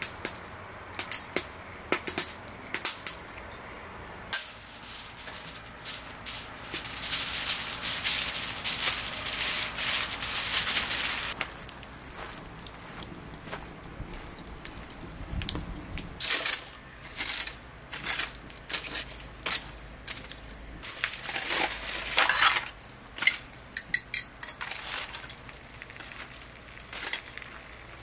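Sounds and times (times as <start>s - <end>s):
metal pan and tongs scraping: 4.3s - 11.4s, 16.2s - 25.4s
aluminium foil crinkling: 4.6s - 28.0s.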